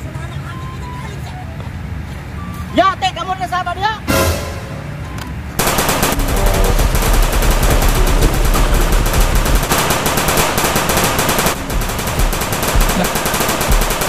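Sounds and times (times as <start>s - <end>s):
automatic rifle fire: 5.6s - 14.0s.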